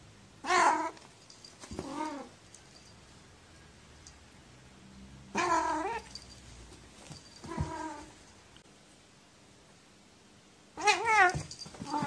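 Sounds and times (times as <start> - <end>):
cat meowing: 0.4 - 1.0, 5.3 - 6.1, 10.8 - 12.0.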